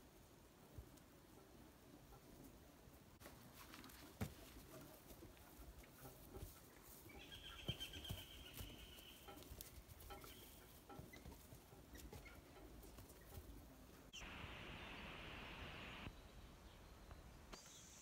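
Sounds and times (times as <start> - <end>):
faint hiss: 14.1 - 16.6.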